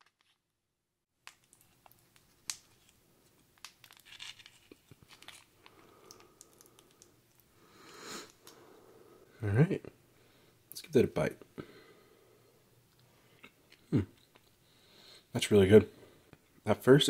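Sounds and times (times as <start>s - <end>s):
packet crinkling and rustling: 1.2s - 7.5s.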